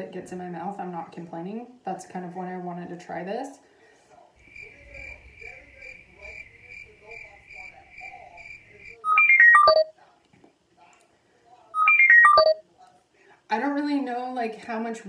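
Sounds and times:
high beeping ringtone: 8.9 - 9.9, 11.8 - 12.6.

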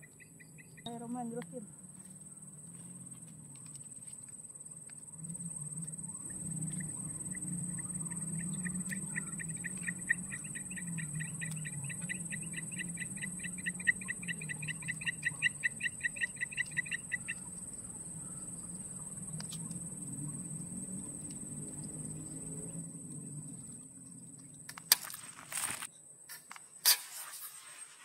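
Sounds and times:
high-pitched whine: 4.9 - 25.9
rapid rhythmic animal call: 6.8 - 17.6.

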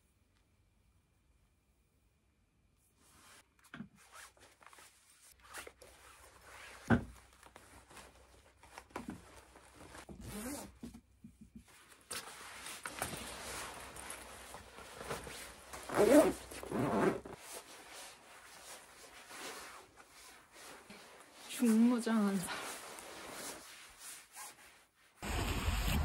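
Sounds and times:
clothing rustling: 3.0 - 25.2
zipper: 10.1 - 10.8, 12.9 - 17.6.

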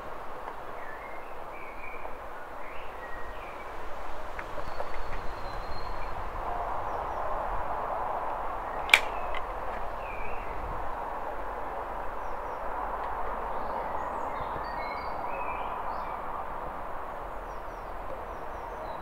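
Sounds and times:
outdoor background hiss: 0.0 - 19.0
birds chirping: 4.4 - 6.3, 8.7 - 10.6
clapperboard snapping shut: 8.9 - 9.5.

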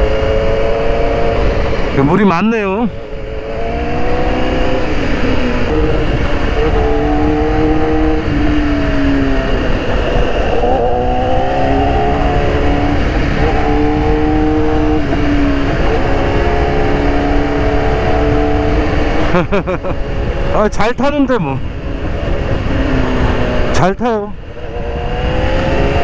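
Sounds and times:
motorcycle engine revving: 0.0 - 26.0
wind rumble on microphone: 0.0 - 26.0.

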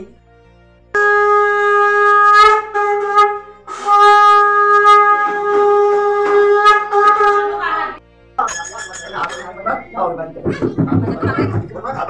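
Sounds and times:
conch shell blasts: 1.0 - 7.8.

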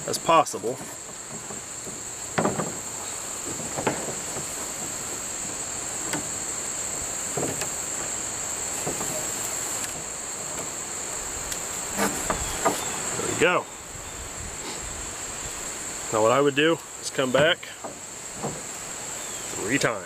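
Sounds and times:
crickets droning: 0.0 - 20.0
cord knocks and rustles: 0.6 - 10.7.

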